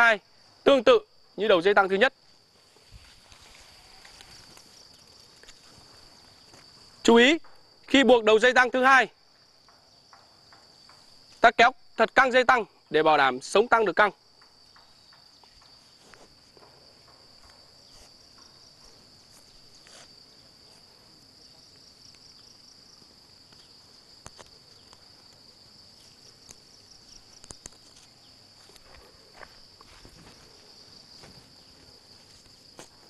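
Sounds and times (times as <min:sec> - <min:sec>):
insects chirring: 0:00.0 - 0:33.0
cord rustling and clicking: 0:27.3 - 0:28.1.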